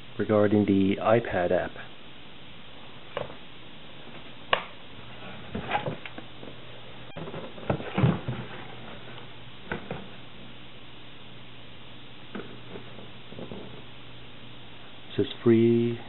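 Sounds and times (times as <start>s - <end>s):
steady low hum: 0.0s - 16.0s
knocks and rustles of handling: 5.2s - 10.2s, 12.3s - 13.9s.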